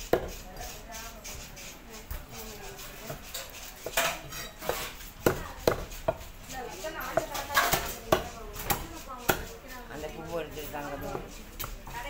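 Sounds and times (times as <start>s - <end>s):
knife chopping on wooden block: 0.1s - 0.7s, 3.0s - 6.3s, 7.0s - 9.6s.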